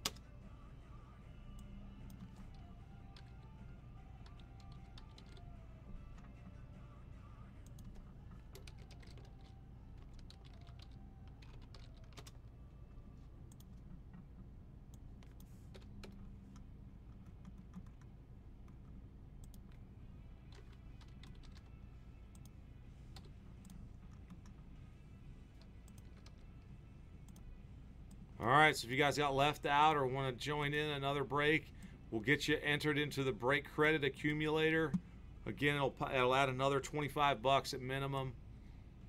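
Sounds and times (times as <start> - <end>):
low steady hum: 0.0 - 39.0
keyboard typing: 2.1 - 3.5, 4.2 - 5.5, 7.6 - 12.6, 13.5 - 19.9, 20.5 - 22.5, 25.6 - 26.6.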